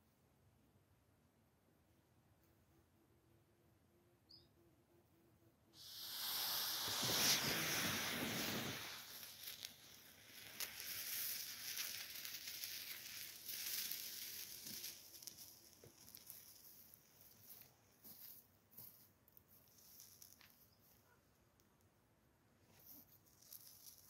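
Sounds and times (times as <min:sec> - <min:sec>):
igniter hissing: 0:05.8 - 0:16.8
pops and crackles: 0:05.8 - 0:18.4, 0:19.6 - 0:20.9, 0:22.7 - 0:24.0.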